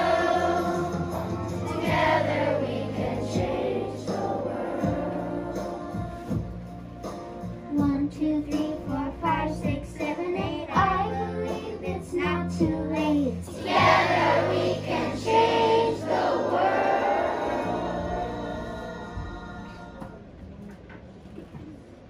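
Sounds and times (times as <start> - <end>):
children's choir singing: 0.0 - 6.3, 10.0 - 20.2.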